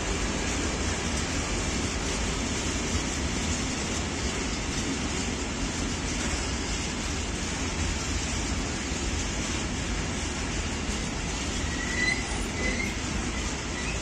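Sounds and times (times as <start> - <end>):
freight train wheels rattling: 0.0 - 14.0
high wheel squeals: 11.5 - 14.0.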